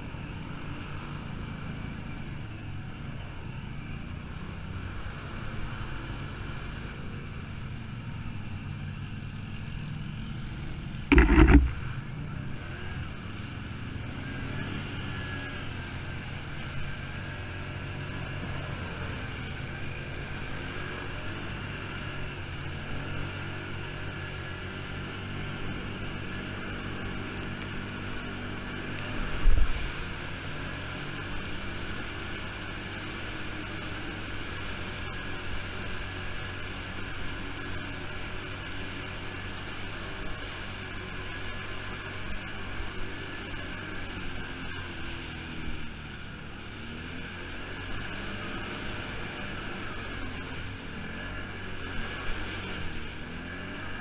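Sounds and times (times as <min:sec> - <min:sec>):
quad engine running: 0:00.0 - 0:54.0
loud thumps: 0:11.1 - 0:12.0.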